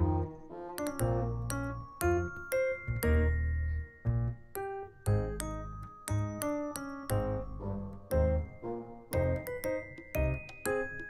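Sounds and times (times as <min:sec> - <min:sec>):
light keyboard tune: 0:00.0 - 0:11.0.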